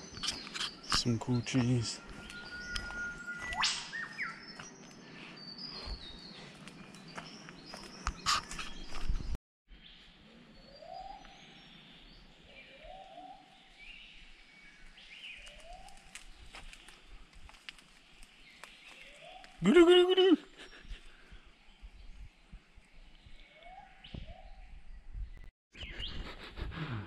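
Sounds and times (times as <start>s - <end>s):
high bird chirps: 0.0s - 4.8s
footsteps on forest trail: 0.0s - 9.4s, 13.8s - 19.9s
low rising and falling bird call: 1.8s - 7.0s
bird rising whistle: 2.2s - 4.4s.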